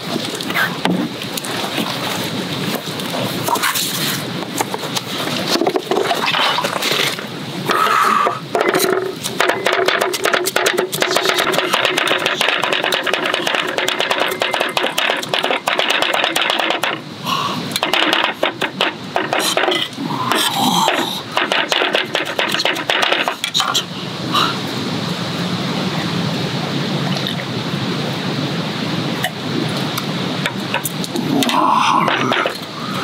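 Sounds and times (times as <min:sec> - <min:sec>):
cleavers chopping on wooden board: 0:08.5 - 0:17.0, 0:17.8 - 0:19.8, 0:20.8 - 0:23.4.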